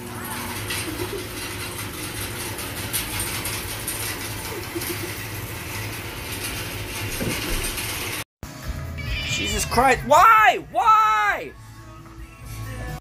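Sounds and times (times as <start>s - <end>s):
hay bale elevator chain clatter: 0.2s - 8.2s.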